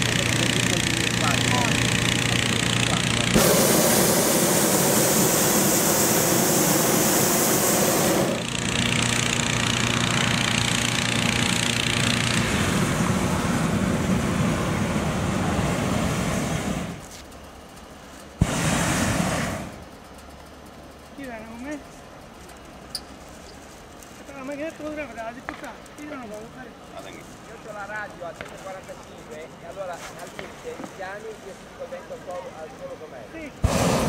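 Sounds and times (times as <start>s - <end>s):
propane burner roaring: 0.0s - 21.8s, 33.4s - 34.0s
engine hum: 0.0s - 34.0s.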